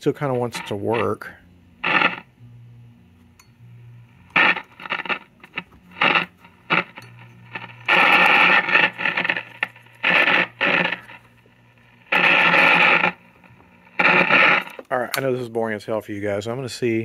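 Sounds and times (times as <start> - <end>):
radio playing through speaker: 0.0 - 2.3, 4.0 - 14.9
low hum: 0.0 - 14.9.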